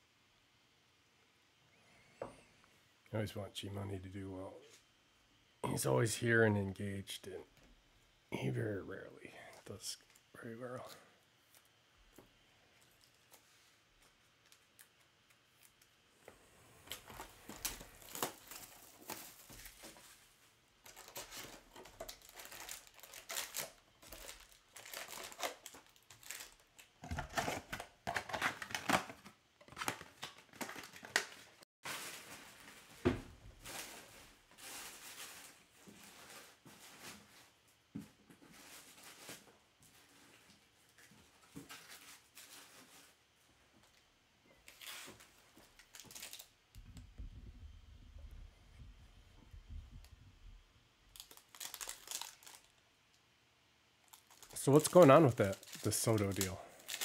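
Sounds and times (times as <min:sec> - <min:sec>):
wrappers crinkled and torn: 0:12.7 - 0:16.0, 0:16.8 - 0:20.0, 0:20.8 - 0:32.9, 0:44.6 - 0:46.8, 0:51.1 - 0:53.2, 0:54.0 - 0:57.0.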